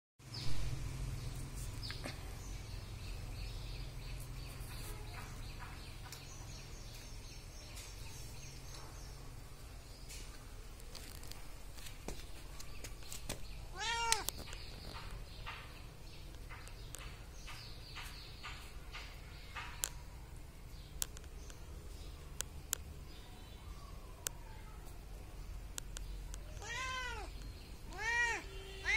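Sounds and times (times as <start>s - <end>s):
cat meowing: 13.7s - 14.3s, 26.5s - 27.3s, 27.9s - 28.9s.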